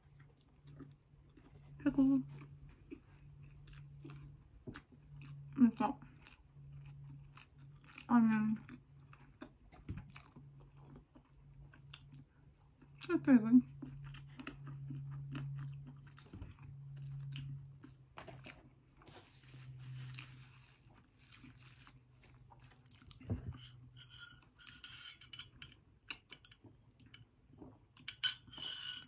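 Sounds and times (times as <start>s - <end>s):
low steady hum: 0.0s - 29.0s
person chewing burger: 2.4s - 8.1s, 8.7s - 13.1s, 13.8s - 23.2s.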